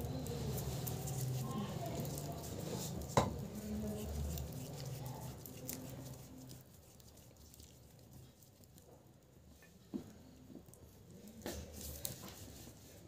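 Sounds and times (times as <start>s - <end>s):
wood fire crackling: 0.0s - 13.0s.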